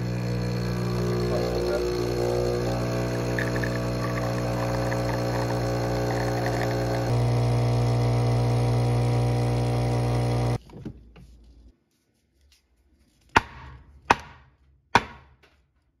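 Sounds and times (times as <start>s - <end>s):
espresso machine pump humming: 0.0s - 10.6s.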